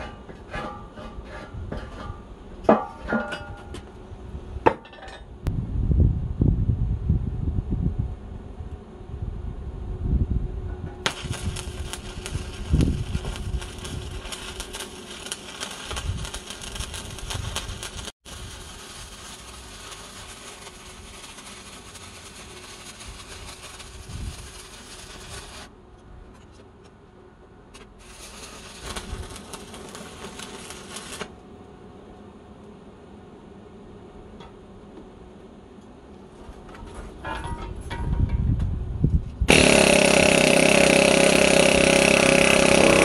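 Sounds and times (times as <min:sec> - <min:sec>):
welding arc crackling: 0:11.0 - 0:25.7, 0:28.0 - 0:31.4, 0:39.5 - 0:43.0.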